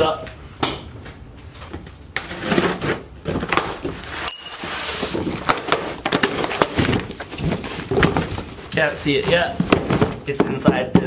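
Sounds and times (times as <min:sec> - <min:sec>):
metallic clink: 0:04.2 - 0:04.9
cardboard tearing: 0:04.8 - 0:10.2.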